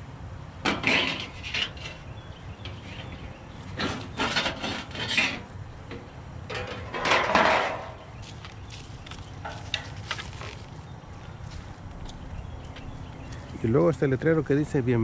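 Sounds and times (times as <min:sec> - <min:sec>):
sign scraping on sidewalk: 0:00.7 - 0:05.6, 0:06.7 - 0:11.8.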